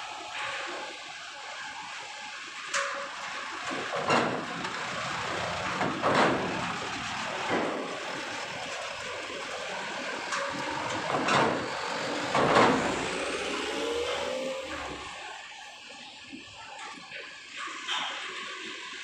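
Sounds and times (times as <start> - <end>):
trucks driving: 3.4 - 16.2.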